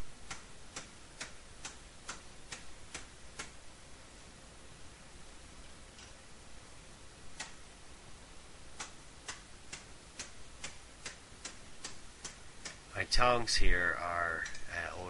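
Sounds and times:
hammer tapping hot steel: 8.8s - 12.8s, 14.4s - 14.7s.

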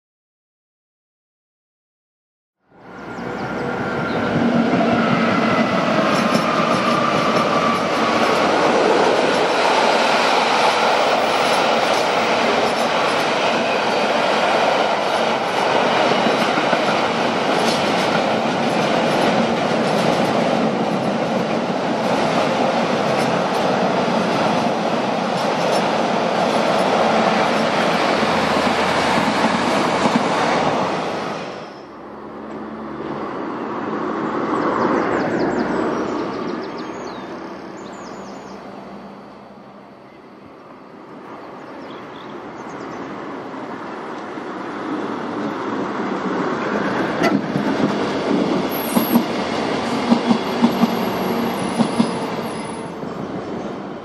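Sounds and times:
freight train wheels clattering: 5.4s - 30.4s, 46.7s - 52.9s.

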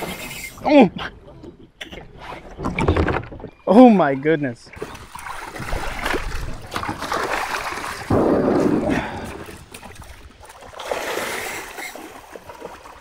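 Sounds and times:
fish splashing in water: 4.8s - 13.0s.

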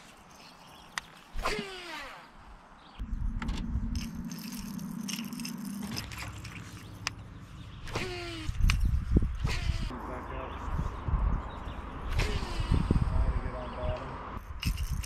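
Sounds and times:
handling rumble: 3.0s - 10.0s
fishing reel whirring: 4.0s - 7.1s, 7.8s - 9.9s.

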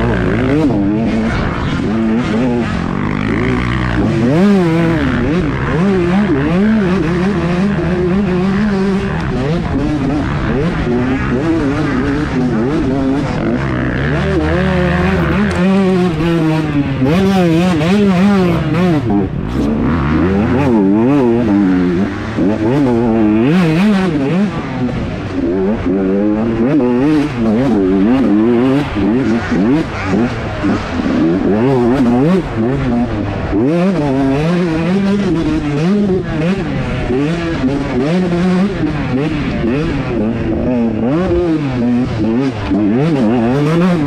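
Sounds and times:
motocross bike engines revving: 0.0s - 44.0s.

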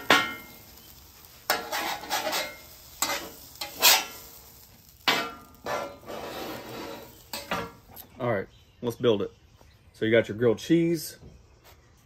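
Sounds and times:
metal spatula scraping griddle: 0.0s - 7.8s
eggs sizzling: 0.0s - 8.2s.

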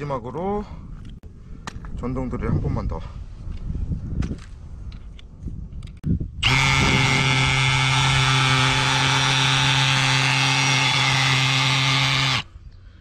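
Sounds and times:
cordless drill motor running: 6.4s - 12.5s.

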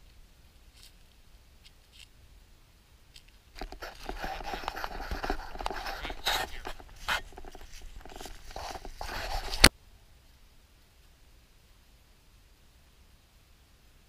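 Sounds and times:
rustling dry leaves: 0.0s - 2.3s, 3.0s - 9.7s
footsteps on dry leaves: 3.7s - 9.6s.

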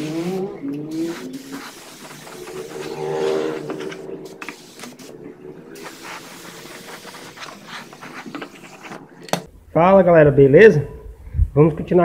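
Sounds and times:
paint spray gun hissing: 0.0s - 5.1s, 5.7s - 8.7s.

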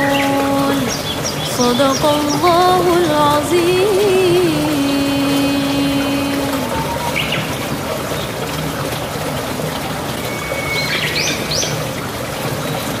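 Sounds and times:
birds chirping: 0.0s - 13.0s
water trickling: 0.0s - 13.0s
thin bird whistle: 10.3s - 11.4s.

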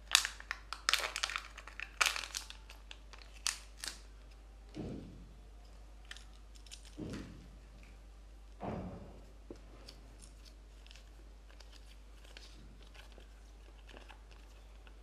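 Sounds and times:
paper crackling: 0.0s - 4.0s, 9.8s - 15.0s
plastic packet crinkling: 0.0s - 4.2s, 9.8s - 15.0s
dull thump: 4.7s - 5.3s, 8.6s - 9.3s.

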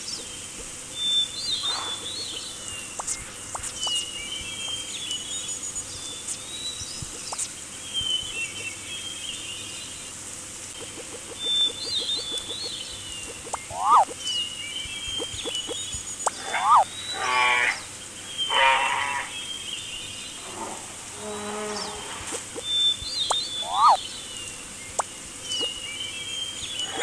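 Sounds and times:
animal calls: 10.8s - 14.2s, 15.2s - 19.3s, 23.5s - 24.0s, 26.8s - 27.0s
high bird whistles: 10.8s - 14.2s, 22.6s - 24.0s
short zigzag chirps: 10.8s - 14.2s, 15.1s - 16.9s, 23.3s - 24.0s.

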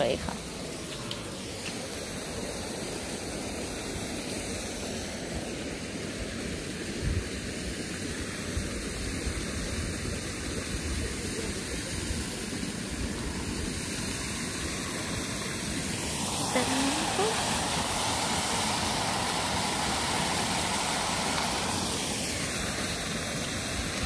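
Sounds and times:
water running from tap: 15.2s - 24.0s.

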